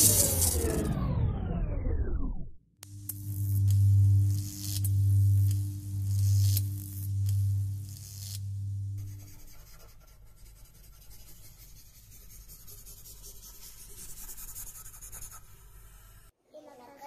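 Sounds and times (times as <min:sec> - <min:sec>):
deep low drone: 0:00.0 - 0:09.7
marker scratching on paper: 0:09.0 - 0:16.1.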